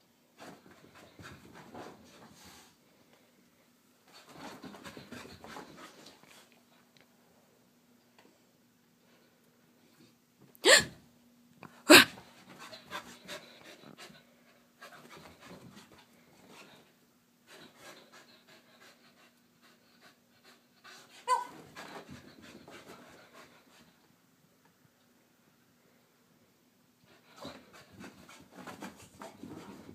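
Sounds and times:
dog panting: 0:17.5 - 0:24.0.

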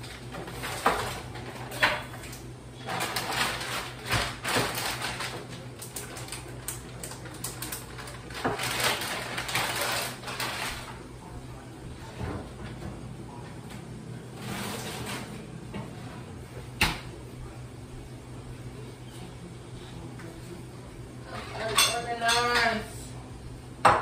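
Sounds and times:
steady low hum: 0:00.0 - 0:24.0
plastic food package rustling: 0:02.8 - 0:11.0.

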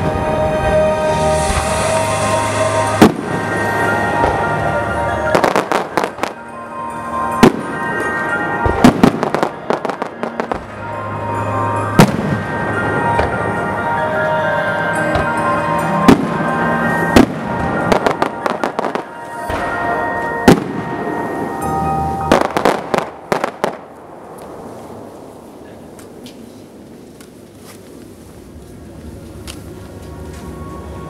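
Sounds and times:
music playing: 0:00.0 - 0:24.6, 0:28.4 - 0:31.0
firework bangs: 0:01.4 - 0:06.5, 0:07.3 - 0:11.1, 0:11.8 - 0:13.8, 0:15.1 - 0:26.6.

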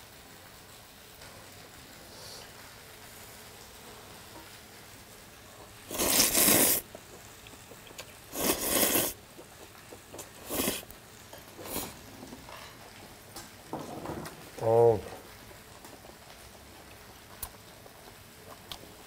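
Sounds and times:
man slurping noodles: 0:05.9 - 0:09.5, 0:10.1 - 0:10.9, 0:11.6 - 0:12.0.

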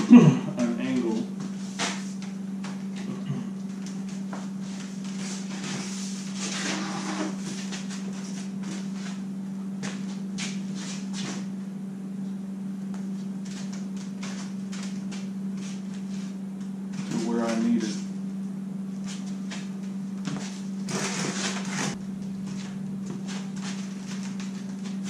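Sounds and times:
steady low hum: 0:00.0 - 0:25.0
short scrape: 0:05.3 - 0:07.4.

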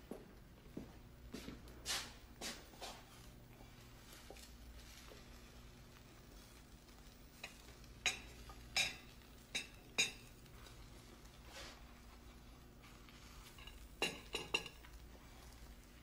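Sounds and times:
low room hum: 0:00.0 - 0:16.0
metal utensils clinking on pan: 0:07.4 - 0:10.8, 0:13.4 - 0:15.0.

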